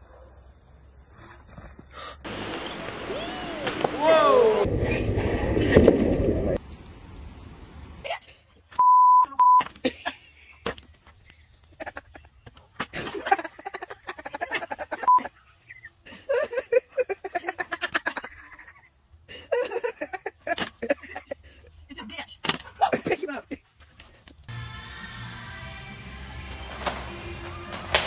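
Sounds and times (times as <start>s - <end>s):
electronic bleep: 8.8s - 9.6s
person laughing: 9.2s - 10.7s, 11.7s - 15.4s, 16.0s - 21.6s.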